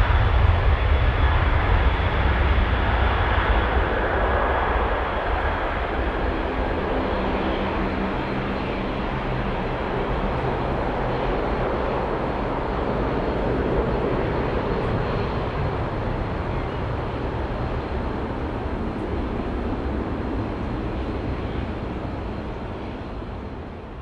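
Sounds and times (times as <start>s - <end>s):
jet engines rumbling: 0.0s - 24.0s.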